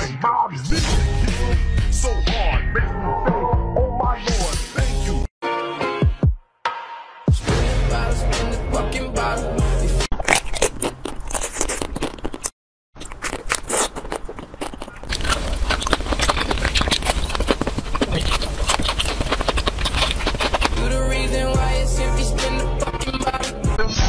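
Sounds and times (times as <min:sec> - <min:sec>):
crunchy bites and chewing: 0:10.1 - 0:21.5
hard coating snapping: 0:13.1 - 0:21.0.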